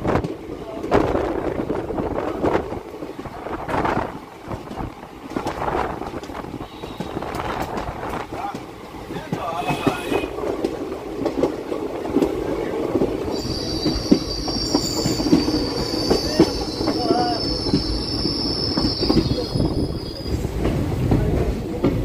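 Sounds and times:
train wheels rumbling on rails: 0.0s - 22.0s
high wheel squeal: 13.3s - 20.5s.

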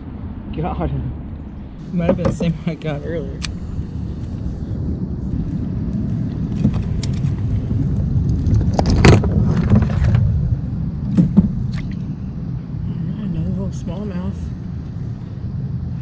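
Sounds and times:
steady low rumble: 0.0s - 16.0s
knocks and rattles on kayak: 1.9s - 2.7s, 6.3s - 12.1s.

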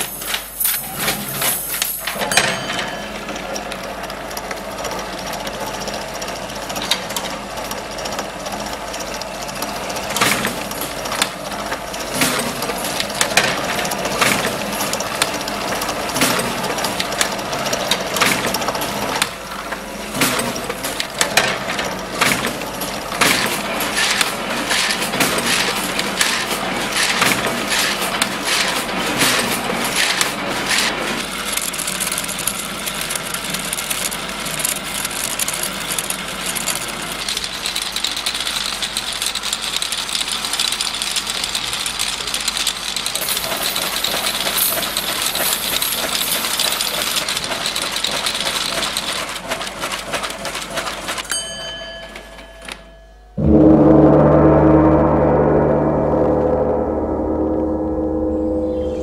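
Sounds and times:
machine running: 53.4s - 59.0s.

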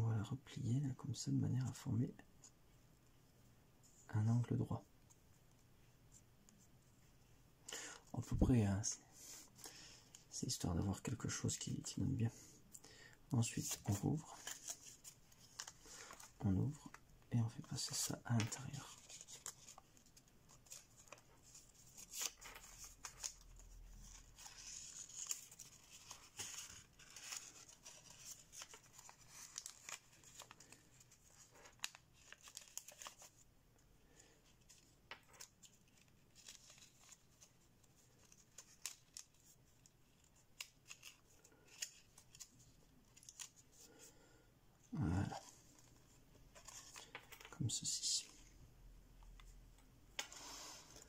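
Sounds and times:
paper crinkling and rustling: 13.4s - 33.5s, 34.2s - 44.1s, 45.0s - 48.6s.

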